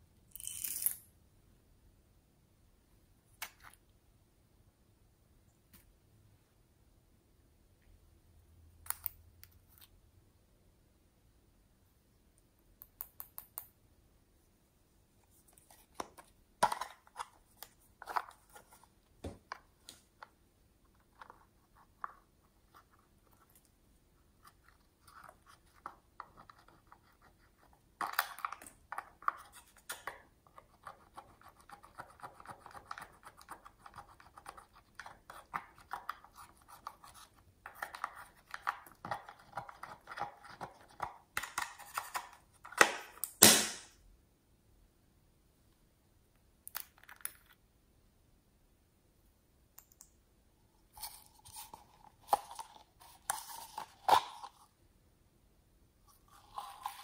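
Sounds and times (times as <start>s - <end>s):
spatula scratching makeup powder: 30.5s - 41.2s.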